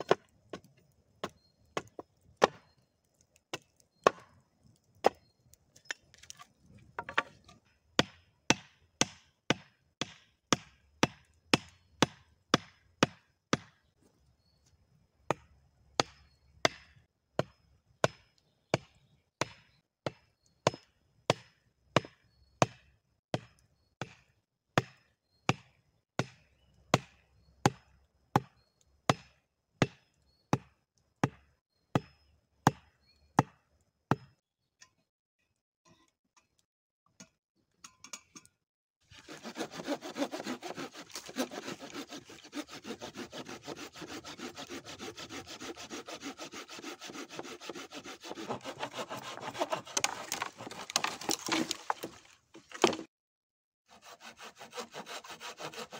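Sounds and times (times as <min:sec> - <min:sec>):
hatchet striking wood: 0:00.0 - 0:02.7, 0:03.5 - 0:04.4, 0:05.8 - 0:13.8, 0:15.3 - 0:34.4, 0:39.3 - 0:53.1.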